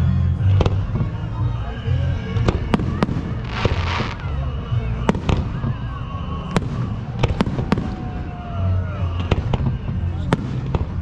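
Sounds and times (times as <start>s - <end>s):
fireworks crackling hiss: 2.4s - 8.3s
fireworks bangs: 2.4s - 11.0s.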